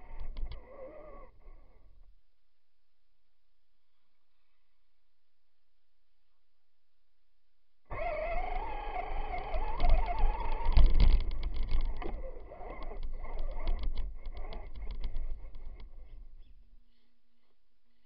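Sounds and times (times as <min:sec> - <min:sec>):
electric motor and gears whining: 0:07.9 - 0:15.6
chassis rattling clicks and knocks: 0:08.4 - 0:16.1.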